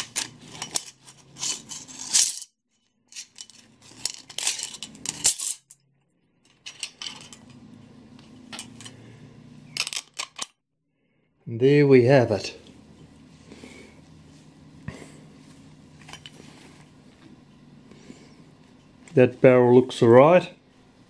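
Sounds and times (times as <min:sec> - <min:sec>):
metal spring coils rattling: 0:00.0 - 0:02.5, 0:03.1 - 0:05.8.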